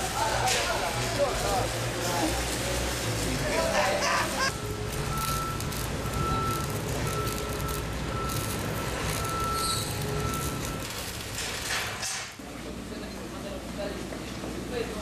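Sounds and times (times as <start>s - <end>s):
reversing alarm beeping: 4.5s - 11.2s.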